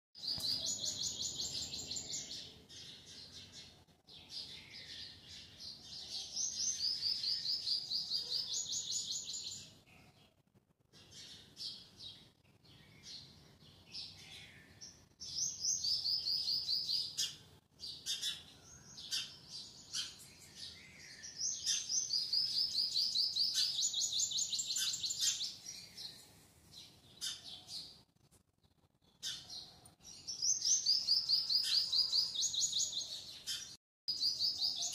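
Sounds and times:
small birds chirping trills: 0.2s - 34.9s.

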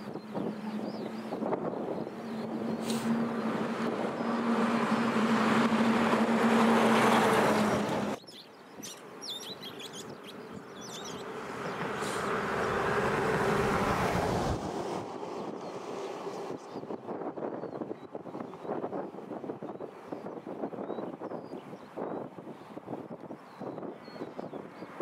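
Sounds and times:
jet engines roaring: 0.0s - 8.2s
high chirps: 8.2s - 11.2s.

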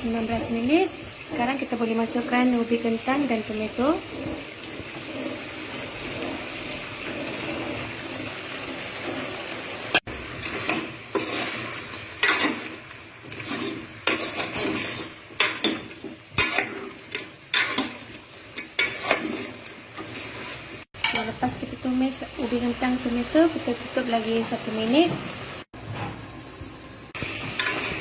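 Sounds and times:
food sizzling in a pot: 0.0s - 28.0s
ladle scraping and clinking pot: 10.0s - 21.3s, 27.4s - 28.0s.

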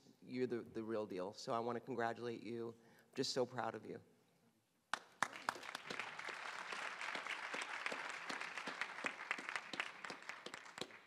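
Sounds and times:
audience applauding: 4.9s - 11.0s.

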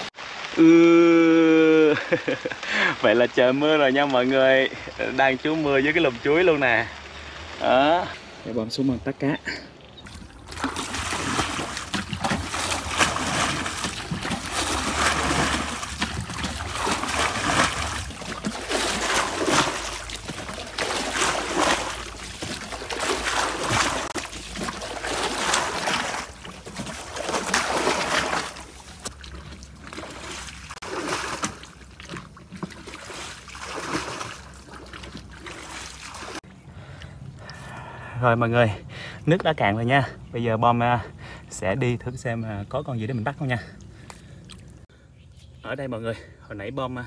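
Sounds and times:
water running: 10.0s - 36.4s
water splashing from bucket: 10.0s - 36.5s.

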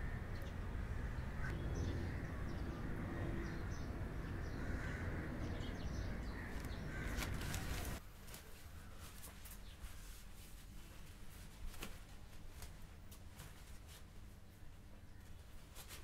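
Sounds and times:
low background rumble: 0.0s - 8.0s.

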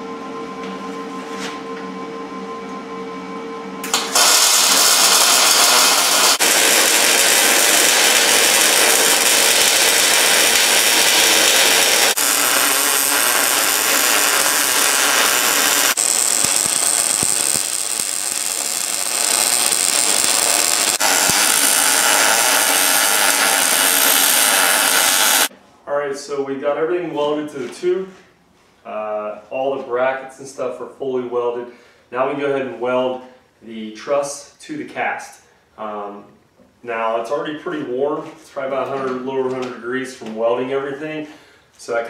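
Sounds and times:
welder arc crackling and hissing: 3.8s - 25.5s.

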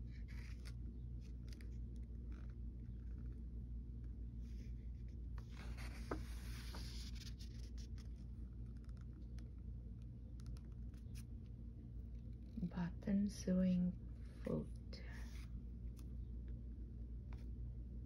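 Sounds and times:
steady low hum: 0.0s - 18.0s
paper pages rustling: 5.4s - 9.4s.

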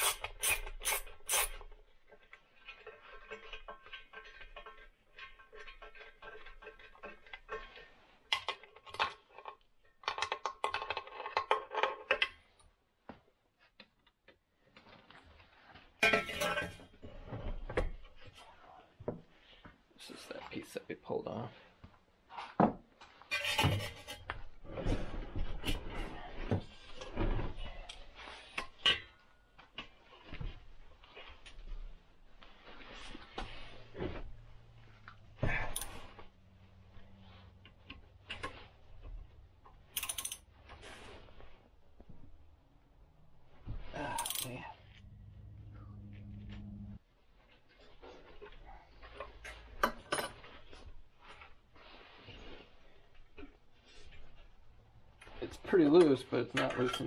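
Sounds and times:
socket wrench clicking and scraping: 0.0s - 1.7s, 39.9s - 40.4s.

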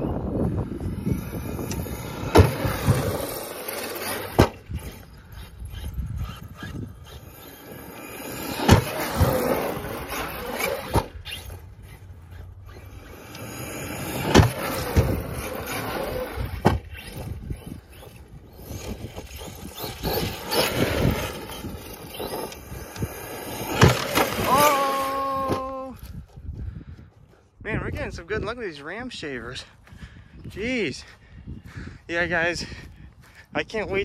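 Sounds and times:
electric motor whining and revving: 0.0s - 26.2s.

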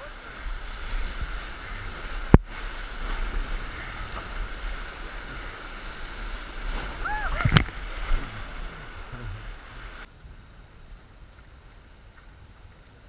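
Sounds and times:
rapids rushing and splashing: 0.0s - 10.1s.

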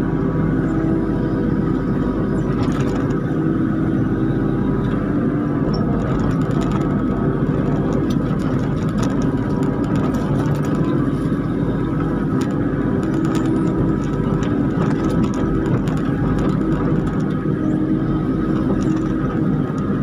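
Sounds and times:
excavator engine and hydraulics: 0.0s - 20.0s.

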